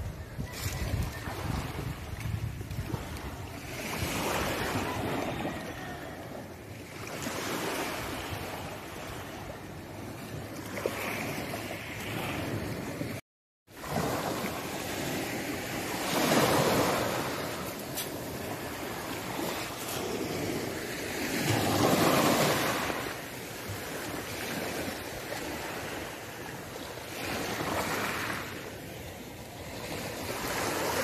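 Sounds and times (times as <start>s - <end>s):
wind on microphone: 0.0s - 13.2s
waves washing onto pebbles: 13.7s - 26.2s.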